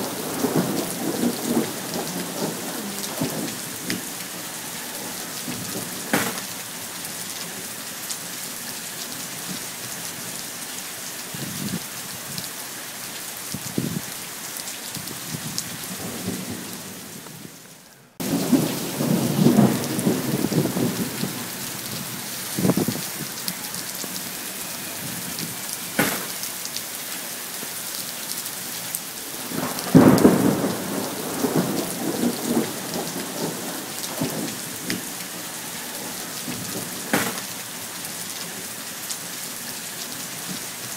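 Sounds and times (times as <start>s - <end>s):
thunder rumbling: 0.0s - 6.7s, 15.0s - 17.6s, 18.2s - 26.4s, 29.2s - 37.6s
heavy rain on pavement: 0.0s - 40.9s.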